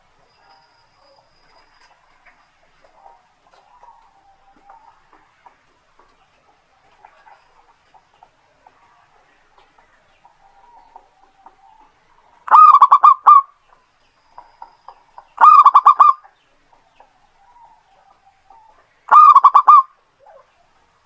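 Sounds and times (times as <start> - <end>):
dove cooing: 10.3 - 13.6, 15.4 - 16.3, 17.2 - 20.8.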